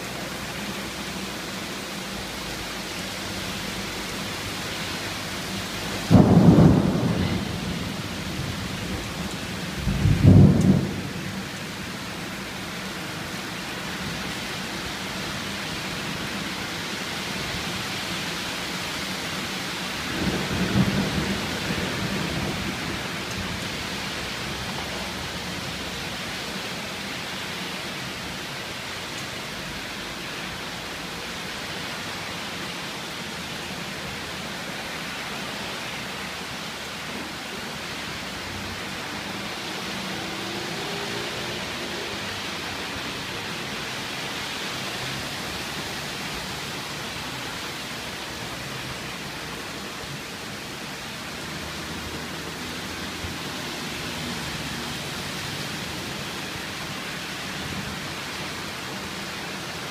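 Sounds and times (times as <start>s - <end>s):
steady rain: 0.0s - 59.9s
thunder: 6.0s - 11.4s.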